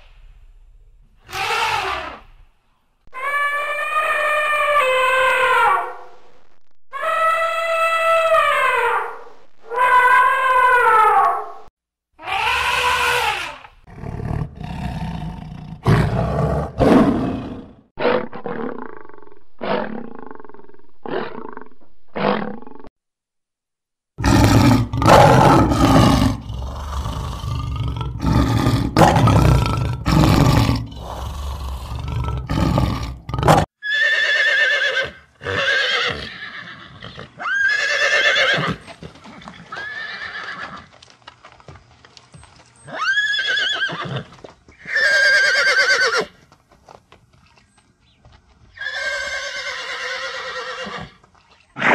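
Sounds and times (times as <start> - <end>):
elephant calls: 1.2 - 2.4, 3.1 - 6.1, 7.0 - 13.6
lion roaring: 13.9 - 22.9, 24.2 - 33.7
horses neighing: 24.2 - 40.9, 42.9 - 46.4, 48.8 - 51.2.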